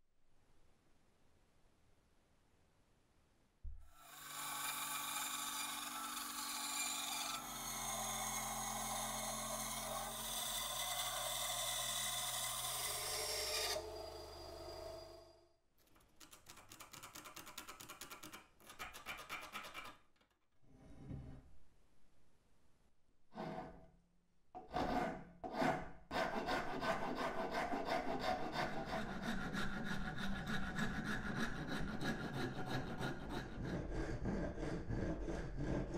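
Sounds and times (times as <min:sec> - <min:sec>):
bandsaw cutting wood: 0:04.0 - 0:15.0.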